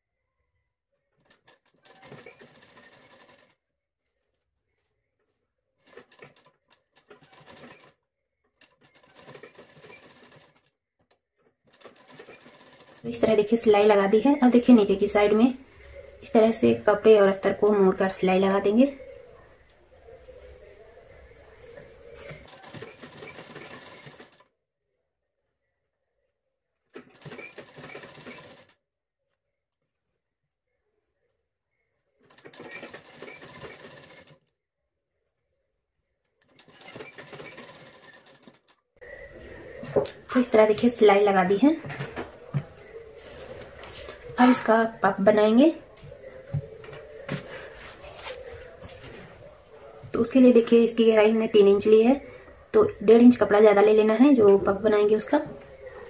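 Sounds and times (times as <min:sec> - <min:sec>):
sewing machine stitching: 0:01.1 - 0:03.6, 0:05.8 - 0:08.0, 0:08.6 - 0:10.7, 0:11.4 - 0:13.7, 0:22.2 - 0:24.5, 0:26.9 - 0:28.8, 0:32.2 - 0:34.5, 0:36.4 - 0:38.8.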